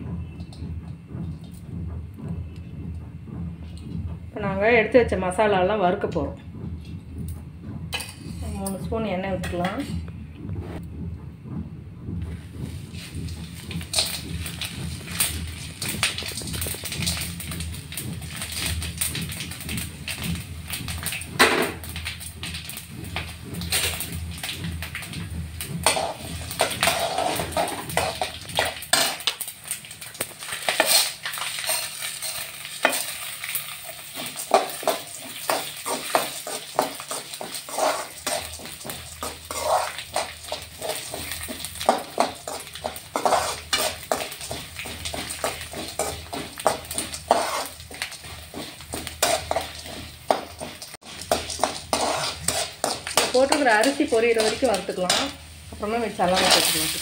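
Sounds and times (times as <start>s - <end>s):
metal spoon scraping a pan: 8.0s - 10.0s, 13.0s - 21.2s, 21.9s - 57.0s
oil sizzling: 12.2s - 57.0s.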